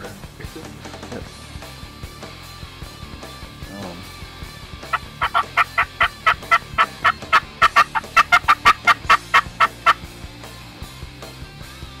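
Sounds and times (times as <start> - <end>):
turkey yelping: 4.8 - 10.0.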